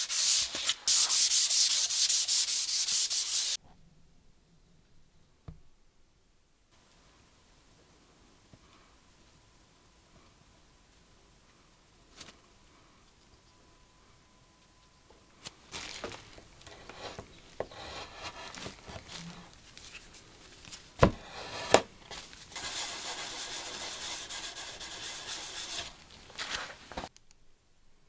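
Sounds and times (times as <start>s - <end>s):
pad rubbing on wood: 16.7s - 18.9s, 22.6s - 25.9s.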